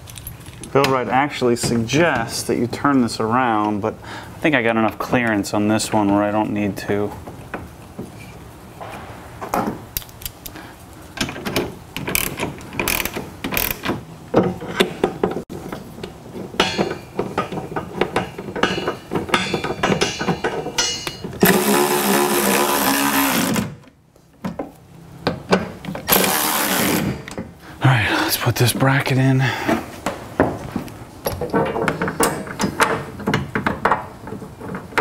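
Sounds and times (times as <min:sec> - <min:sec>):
metal hardware clicking and rattling: 0:00.0 - 0:01.0, 0:16.4 - 0:21.5, 0:31.2 - 0:35.0.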